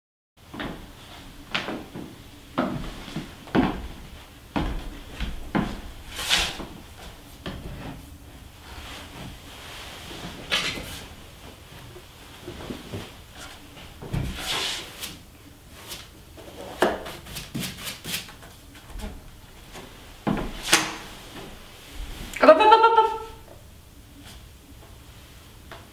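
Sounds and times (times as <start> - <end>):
wooden chairs knocking and creaking: 0.4 - 8.1, 18.8 - 22.4
clothing rustling: 0.5 - 16.7, 18.6 - 22.4.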